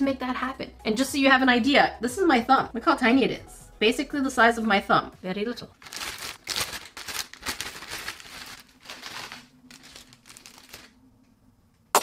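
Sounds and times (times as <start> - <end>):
plastic bag crinkling: 5.7 - 11.0.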